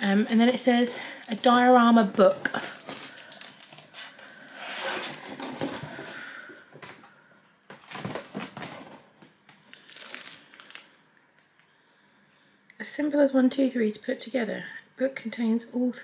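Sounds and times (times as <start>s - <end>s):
paper and packaging rustling: 1.2s - 7.0s, 7.7s - 9.1s, 9.7s - 10.9s.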